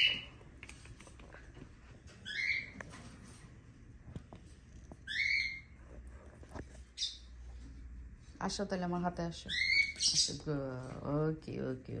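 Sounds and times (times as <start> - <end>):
bird squawking: 0.0 - 0.3, 2.2 - 2.8, 5.1 - 5.8, 9.5 - 10.4.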